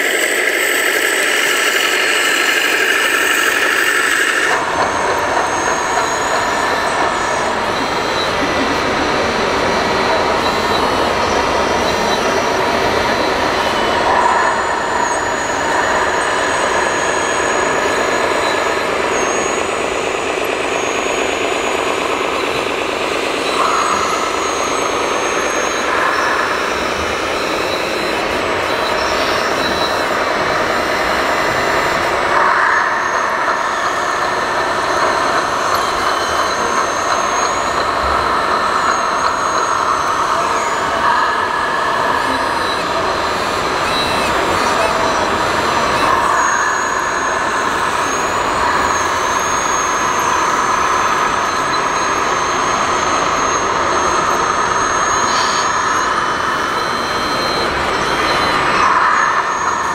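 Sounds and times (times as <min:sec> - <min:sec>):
toy loader hydraulic whine: 0:00.0 - 0:59.9.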